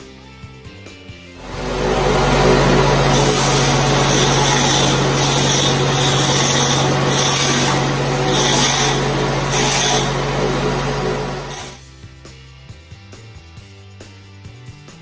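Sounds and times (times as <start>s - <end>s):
grass being shredded: 1.4s - 11.8s
small petrol engine running: 1.4s - 11.8s.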